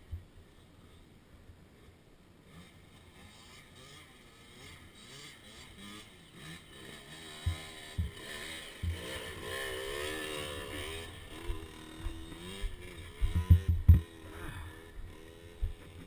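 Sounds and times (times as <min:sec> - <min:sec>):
dirt bike engine revving: 0:01.8 - 0:16.0
dull thumps: 0:07.4 - 0:08.2, 0:13.2 - 0:14.0.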